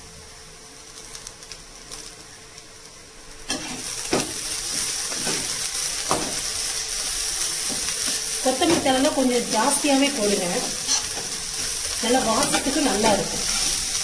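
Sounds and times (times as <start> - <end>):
food sizzling in a pan: 0.0 - 14.0
metal spatula scraping: 3.5 - 3.9, 10.6 - 14.0.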